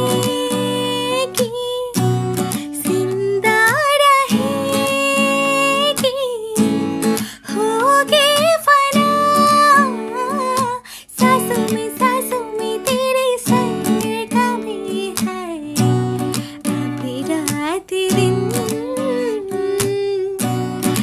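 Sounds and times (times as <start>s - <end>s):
strummed acoustic guitar: 0.0s - 21.0s
woman singing: 0.0s - 21.0s.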